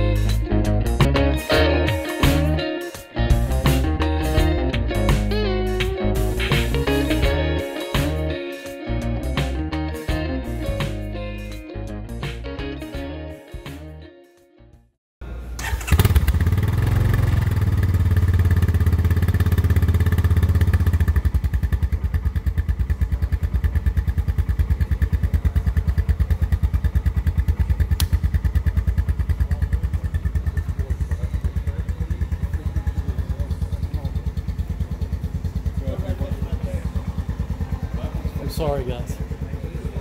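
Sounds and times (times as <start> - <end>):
engine idling: 15.6 - 40.0.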